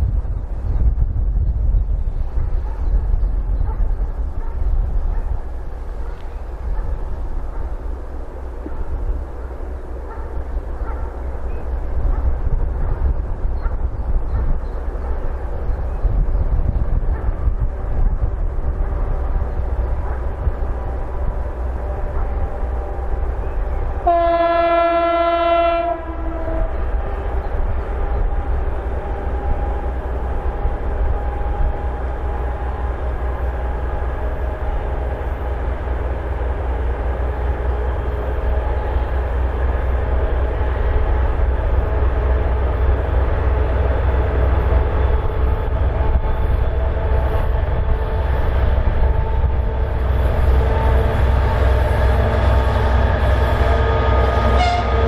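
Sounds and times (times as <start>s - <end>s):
diesel locomotive engine rumbling: 0.0s - 55.0s
train horn: 20.0s - 33.0s, 36.6s - 55.0s.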